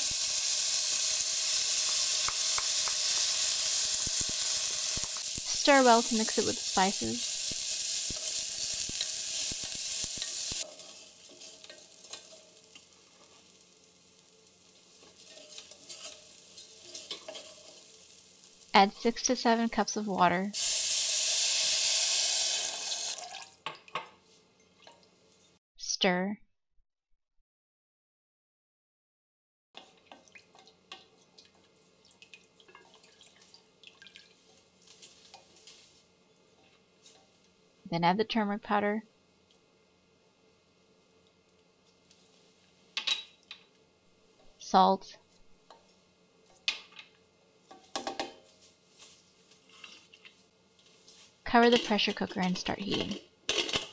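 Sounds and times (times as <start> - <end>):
beans sizzling in hot fat: 0.0 - 23.6, 29.8 - 37.8, 39.1 - 53.9
stirring scrapes and clicks: 15.0 - 17.6
water sloshing and dripping: 30.0 - 35.4.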